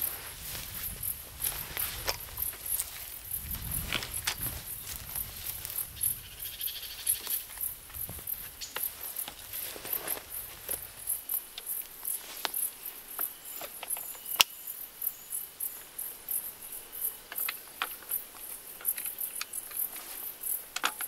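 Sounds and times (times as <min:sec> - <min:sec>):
crickets chirring: 0:00.0 - 0:21.0
light clicks and rustles: 0:17.3 - 0:21.0.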